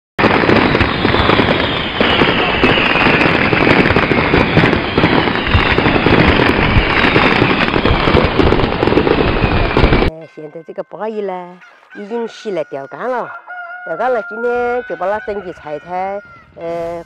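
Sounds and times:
firecrackers popping: 0:00.2 - 0:10.1.

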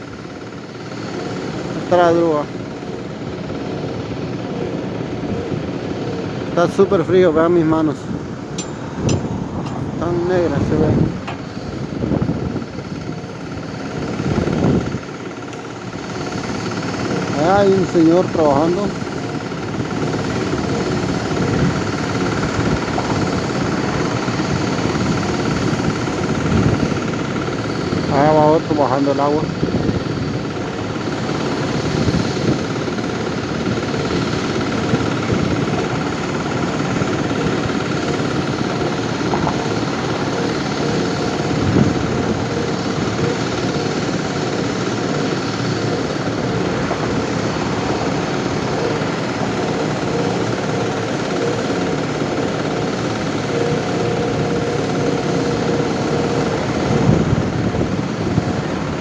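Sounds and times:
machinery engine drone: 0:00.0 - 0:59.0
wind rushing over microphone: 0:07.7 - 0:15.2, 0:21.2 - 0:27.2, 0:29.4 - 0:30.5, 0:38.8 - 0:40.7, 0:41.3 - 0:43.3, 0:56.6 - 0:59.0.

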